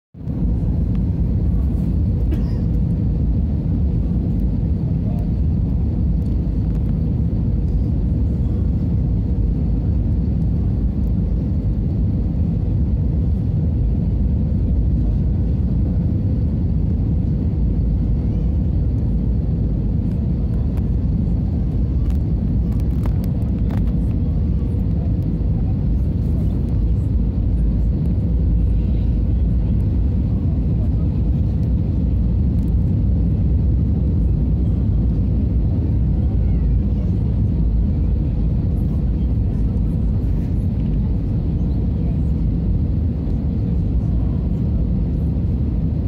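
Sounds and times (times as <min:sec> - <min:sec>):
airliner cabin engine rumble: 0:00.2 - 0:46.0.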